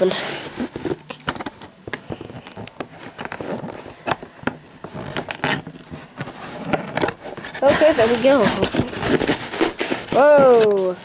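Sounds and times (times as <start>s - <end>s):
cardboard flaps crackling and scraping: 0.0s - 11.0s.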